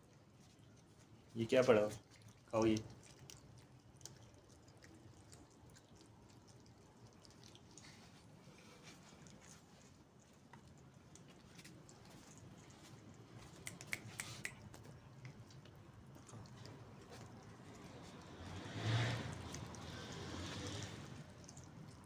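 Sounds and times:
cats chewing meat: 0.0 - 22.0.

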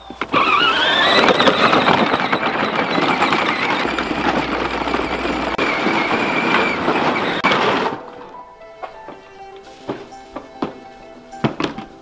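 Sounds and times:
electric motor whining: 0.0 - 8.1
plastic wheels rattling on dirt: 0.0 - 12.0.

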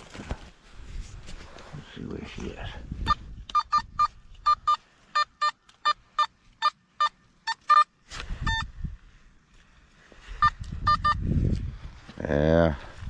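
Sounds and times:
metal detector high beeps: 3.0 - 8.8, 10.4 - 11.2
metal detector low beep: 3.0 - 8.8, 10.4 - 11.3.

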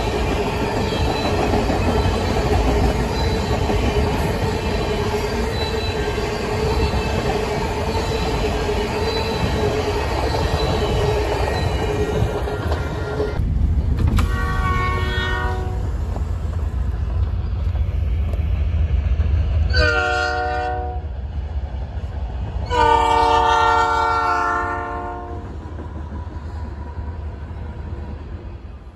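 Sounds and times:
low rumble of train: 0.0 - 28.9
locomotive air horn blasts: 14.2 - 15.8, 19.7 - 21.0, 22.7 - 25.4.

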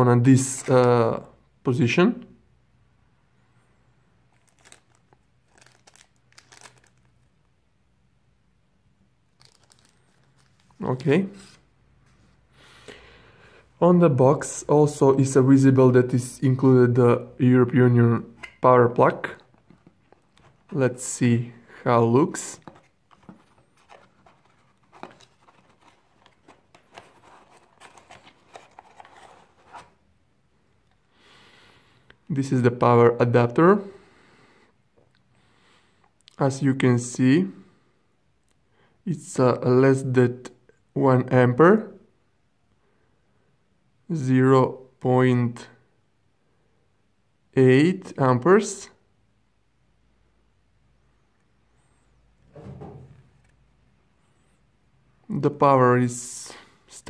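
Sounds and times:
plastic bag crinkling: 4.3 - 7.2, 9.3 - 11.0
plastic clicks and rustles on cardboard: 22.6 - 29.9.

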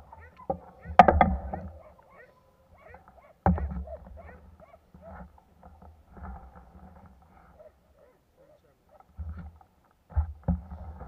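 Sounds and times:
animal chirping calls: 0.0 - 5.2.

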